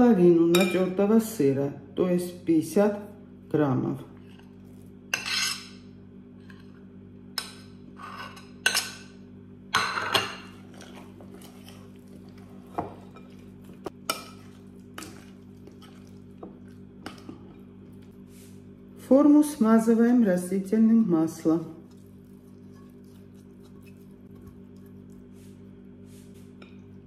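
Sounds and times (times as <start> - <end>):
steady low hum: 0.0 - 27.0
spoon scraping and clinking on glass: 5.1 - 5.8, 7.5 - 9.0.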